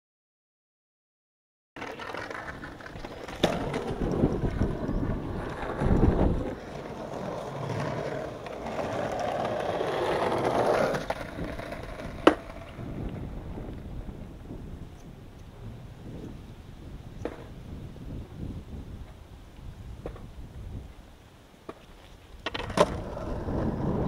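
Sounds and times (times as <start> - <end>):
skateboard clacking: 1.8 - 13.3, 17.2 - 17.6, 21.6 - 24.0
skateboard wheels rolling on concrete: 1.8 - 24.0.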